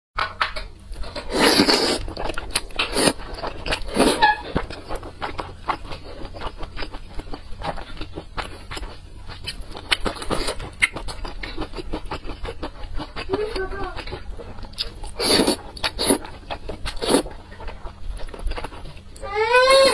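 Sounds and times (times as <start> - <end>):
wet chewing with mouth clicks: 1.0 - 19.3
wet noodle slurp: 1.3 - 2.2, 15.2 - 16.3, 16.9 - 17.4.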